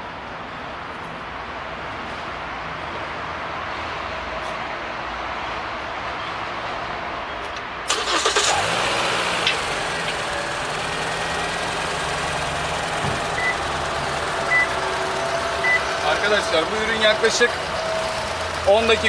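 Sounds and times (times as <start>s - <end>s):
car engine starting and idling: 7.9s - 19.0s.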